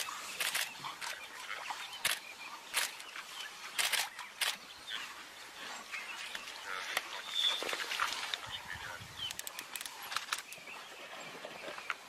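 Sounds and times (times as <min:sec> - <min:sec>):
splashes in shallow water: 0:06.2 - 0:09.0.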